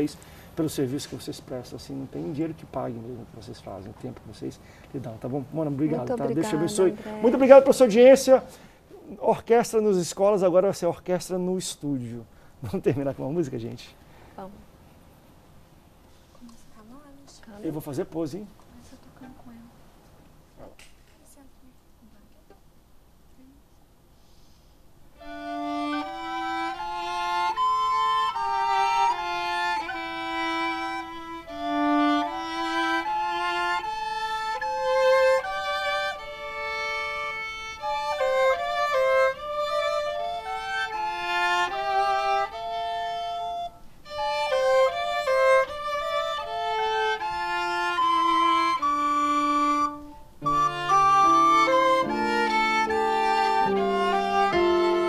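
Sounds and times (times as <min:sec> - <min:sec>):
violin and recorders playing: 0:05.8 - 0:08.4, 0:25.2 - 0:55.0
music with low held notes: 0:25.2 - 0:55.0.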